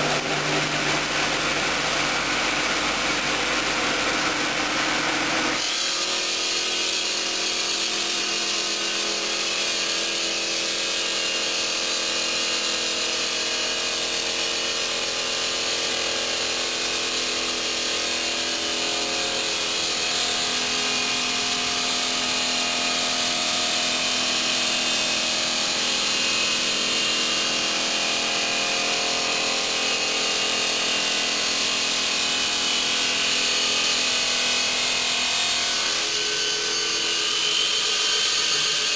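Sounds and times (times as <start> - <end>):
saw blade grinding through stone: 32.4 - 38.9.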